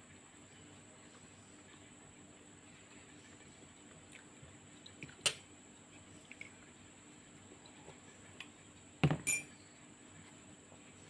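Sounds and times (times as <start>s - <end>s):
mug knocking on table: 9.0s - 9.3s.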